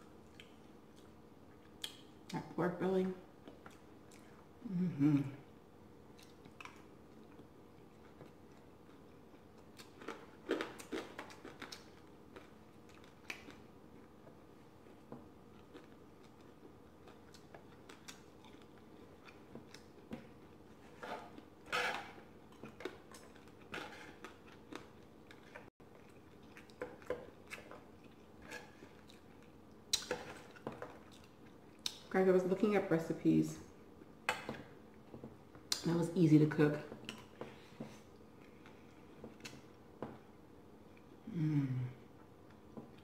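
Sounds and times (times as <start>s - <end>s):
person chewing wetly: 0.0s - 2.4s, 3.4s - 4.6s, 6.0s - 32.1s.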